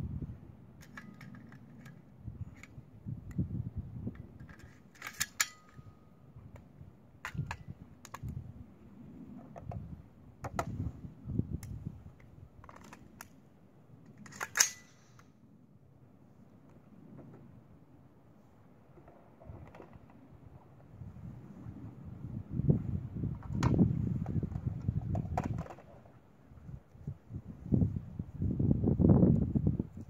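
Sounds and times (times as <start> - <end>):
rifle metallic clicks: 14.1 - 15.3.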